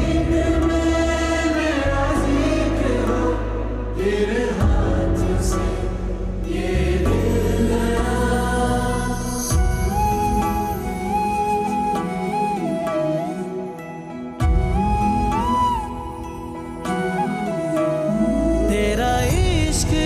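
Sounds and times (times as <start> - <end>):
deep bass notes: 0.0 - 11.2.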